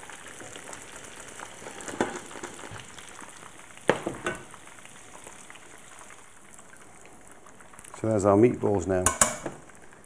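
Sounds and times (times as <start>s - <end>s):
meatballs sizzling in oil: 0.0s - 10.0s
metal tongs knocking on pan: 9.0s - 9.6s.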